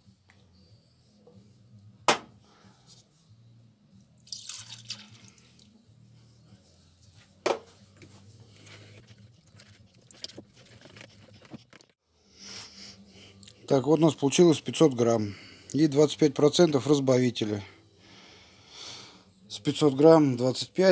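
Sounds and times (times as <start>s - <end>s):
liquid trickling into plastic cup: 4.3s - 5.6s
metal ruler stirring in cup: 8.6s - 11.9s.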